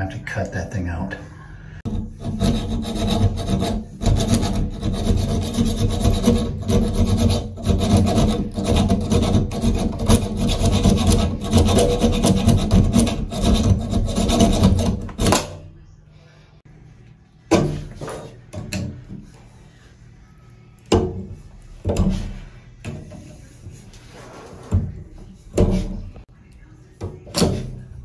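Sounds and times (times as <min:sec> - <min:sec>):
hacksaw sawing metal: 0:01.9 - 0:15.5.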